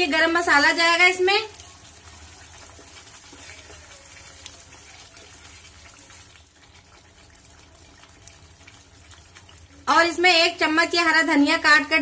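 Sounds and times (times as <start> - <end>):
gravy bubbling in a pan: 0.0 - 12.0
spatula stirring: 1.6 - 9.9.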